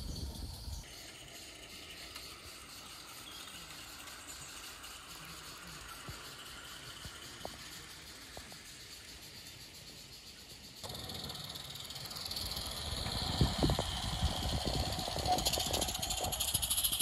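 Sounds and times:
wheels clicking on rails: 0.0 - 17.0
wagons rolling past clicking: 0.6 - 17.0
steam locomotive hissing: 0.8 - 17.0.

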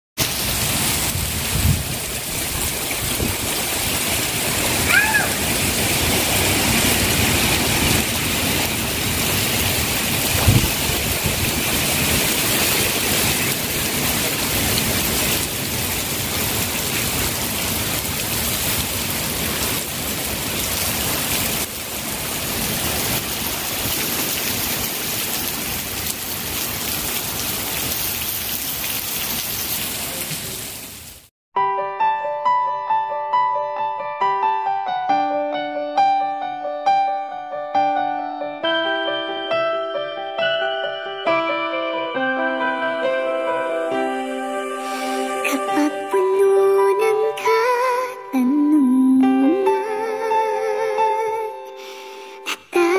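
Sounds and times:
heavy rain pouring: 0.2 - 31.3, 43.5 - 52.9.

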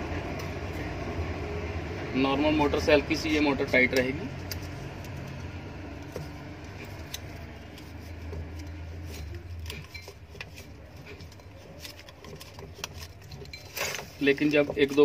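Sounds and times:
low steady hum: 0.0 - 15.0
wire clicking and clinking: 3.8 - 15.0.

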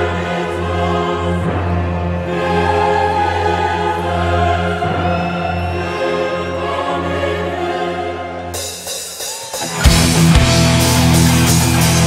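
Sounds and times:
choir singing operatically: 0.0 - 10.4
orchestral music: 0.0 - 12.0.

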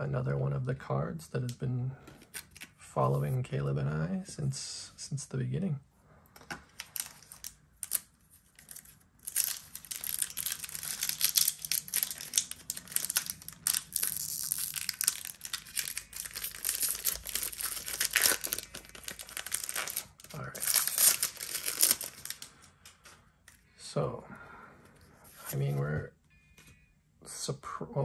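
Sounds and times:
foil wrapper crinkling: 6.8 - 22.7.

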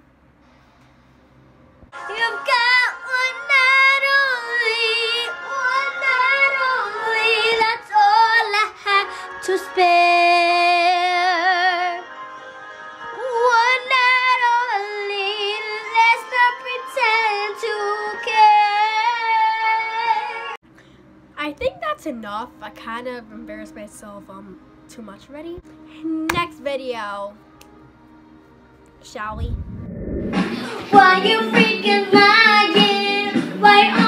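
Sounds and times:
girl singing: 2.1 - 12.0, 13.2 - 20.5, 30.6 - 34.0.

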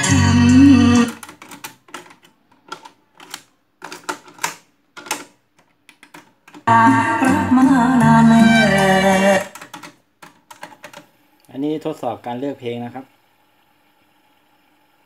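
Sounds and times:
music from cassette tape: 0.0 - 1.6, 6.6 - 9.9.

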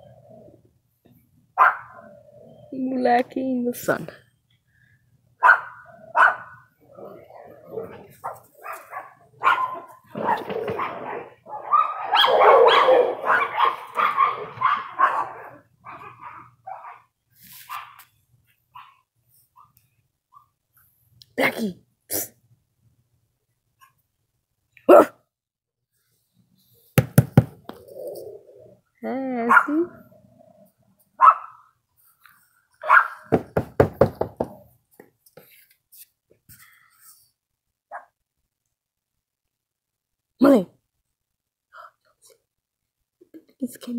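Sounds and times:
dog barking: 1.6 - 2.1, 5.4 - 6.7, 7.8 - 17.1, 24.9 - 25.2, 29.5 - 29.9, 31.2 - 31.7, 32.8 - 33.3, 37.9 - 38.2.

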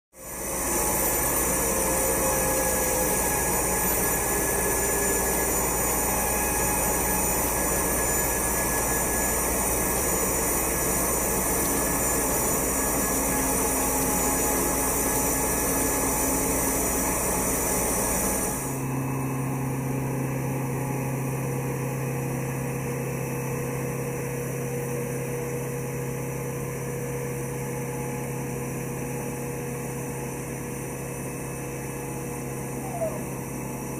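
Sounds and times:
machinery drone: 0.2 - 18.8.

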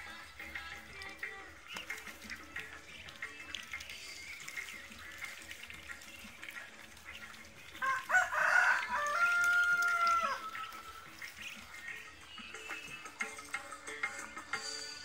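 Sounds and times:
rooster crowing: 7.8 - 10.4.

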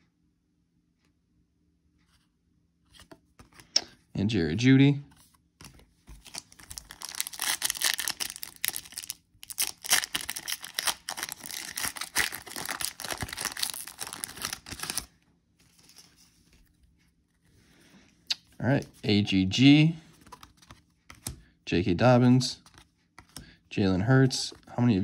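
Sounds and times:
foil wrapper tearing and crinkling: 6.2 - 15.1.

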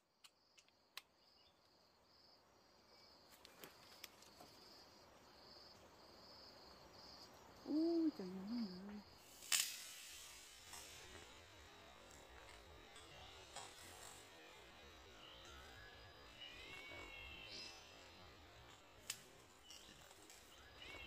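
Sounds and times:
insect chirping: 0.0 - 21.0
low wavering hum: 7.6 - 21.0.

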